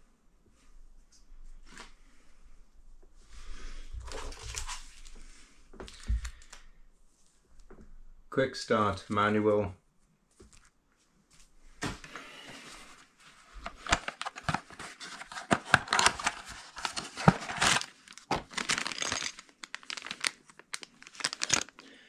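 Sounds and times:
paper bag opened: 13.5s - 21.9s
plastic bag crinkling: 13.5s - 22.0s.

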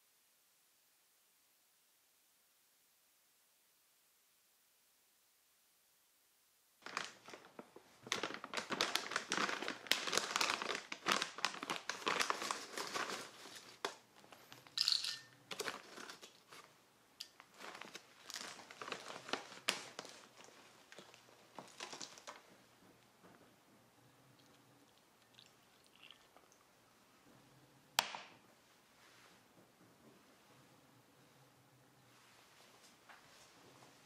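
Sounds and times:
plastic bag crinkling: 6.8s - 22.5s
dried pods rattling into glass bowl: 14.8s - 15.4s.

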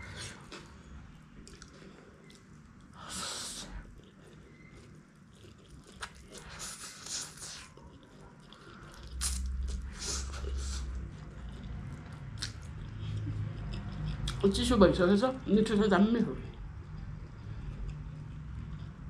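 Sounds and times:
noodles slurped and chewed: 0.0s - 14.6s.

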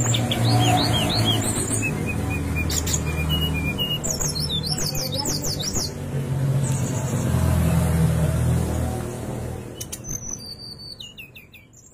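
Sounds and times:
bird singing whistled notes: 0.0s - 6.0s, 9.8s - 11.9s.

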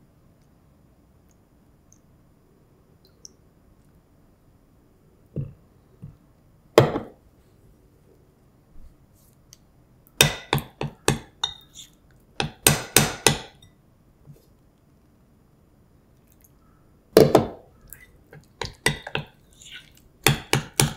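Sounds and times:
metal spoon clinking glass bowl: 10.3s - 11.9s, 13.3s - 13.8s.

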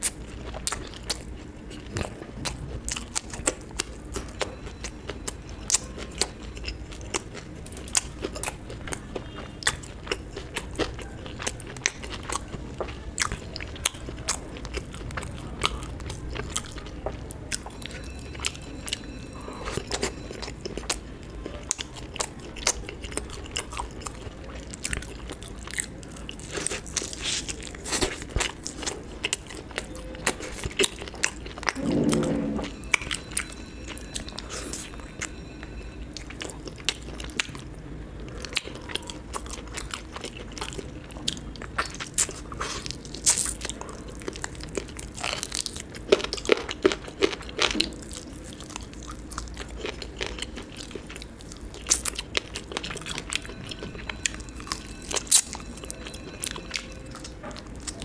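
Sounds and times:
close chewing and biting: 0.0s - 58.0s
brief low sound: 31.8s - 33.1s.

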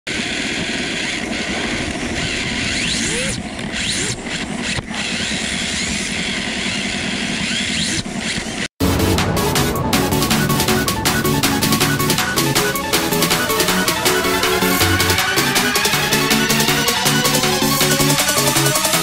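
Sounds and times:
electric motor whining: 0.1s - 8.7s
tyre and drivetrain rush: 0.1s - 19.0s.

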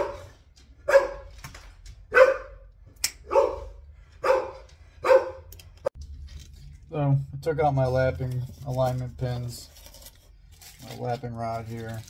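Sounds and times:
dog barking: 0.0s - 1.3s, 2.1s - 5.5s.

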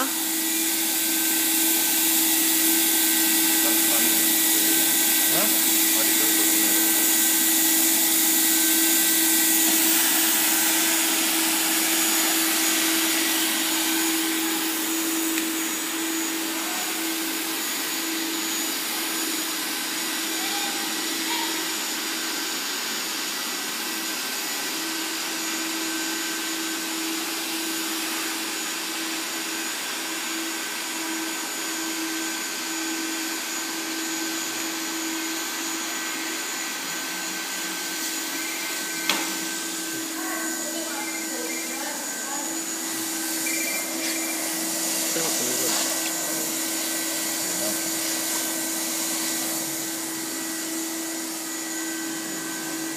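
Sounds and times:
machine hum: 0.0s - 19.0s, 38.2s - 52.8s
hot-air blower hissing: 0.0s - 52.9s.

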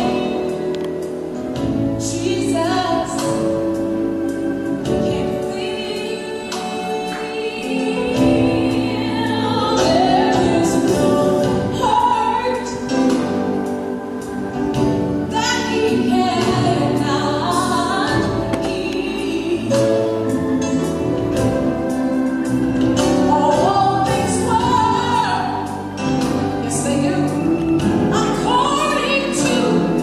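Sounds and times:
person singing lead vocal: 2.0s - 21.0s.

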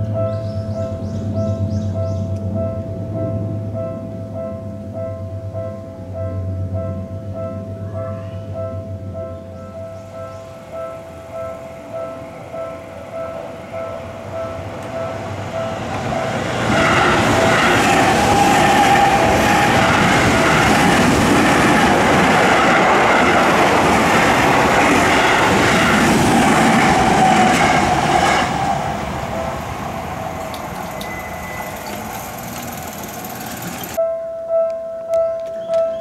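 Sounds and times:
electric train passing: 9.0s - 34.0s
level crossing warning bell: 10.7s - 20.6s, 29.2s - 34.0s.

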